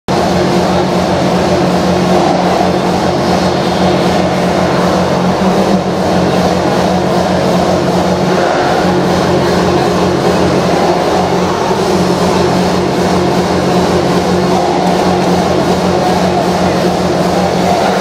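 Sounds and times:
loud hardstyle music: 0.1 - 18.0.

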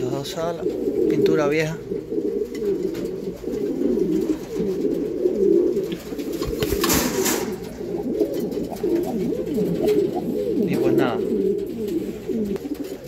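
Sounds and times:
pigeons cooing: 0.0 - 13.0
rustling: 1.9 - 13.0.

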